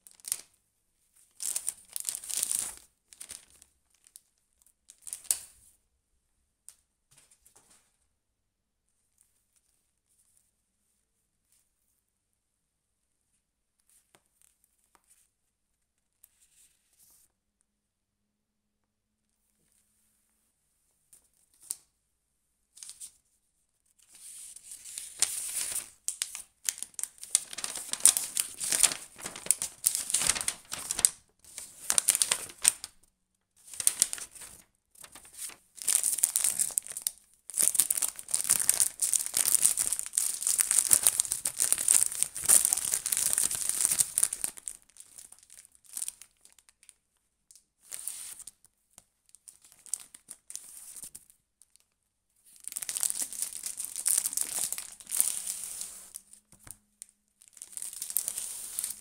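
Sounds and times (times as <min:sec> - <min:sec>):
paper leaflets rustling: 0:01.4 - 0:03.6, 0:24.1 - 0:33.0, 0:33.6 - 0:45.3, 0:52.6 - 0:56.8, 0:57.5 - 0:59.0
plastic bag crinkling: 0:01.4 - 0:03.6, 0:24.7 - 0:33.0, 0:33.6 - 0:46.6, 0:52.6 - 0:56.4, 0:57.4 - 0:59.0.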